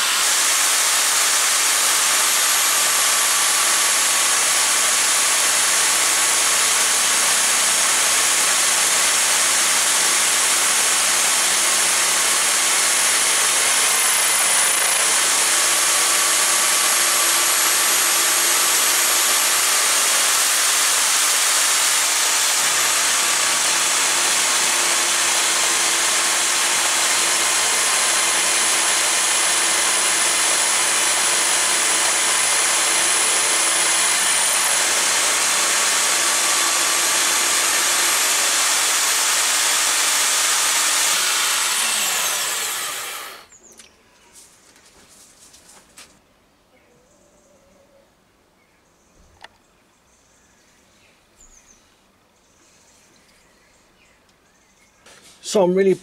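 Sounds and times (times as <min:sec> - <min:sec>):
power drill motor running: 0:00.0 - 0:43.5.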